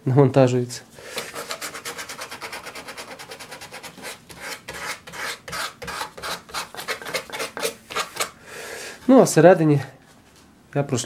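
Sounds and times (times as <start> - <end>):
sandpaper sanding wood: 1.2 - 8.3.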